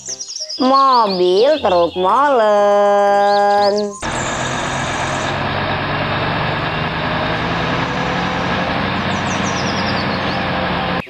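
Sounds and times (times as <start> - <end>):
diesel truck engine running: 3.6 - 11.0.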